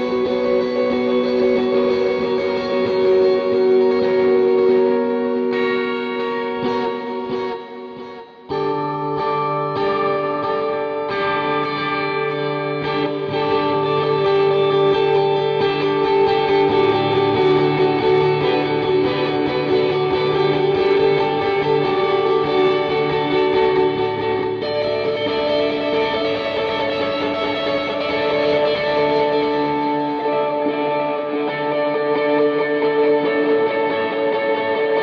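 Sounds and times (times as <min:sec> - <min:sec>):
electric guitar notes ringing: 0:00.0 - 0:35.0.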